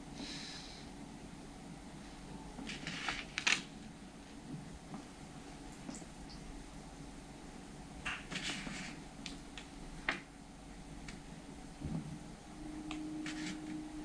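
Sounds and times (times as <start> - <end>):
low room hum: 0.0 - 14.0
paper card rustling: 2.6 - 3.6.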